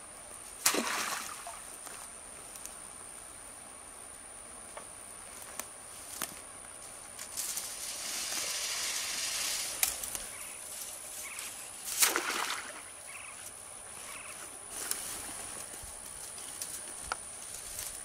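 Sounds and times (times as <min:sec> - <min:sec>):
trap splashing into water: 0:00.6 - 0:01.6, 0:11.9 - 0:12.9
rustling through tall grass: 0:05.2 - 0:18.0.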